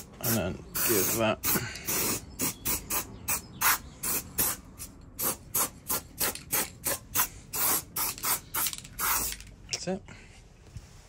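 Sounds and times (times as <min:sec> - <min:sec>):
aerosol spray bursts: 0:00.0 - 0:04.6, 0:05.2 - 0:09.3.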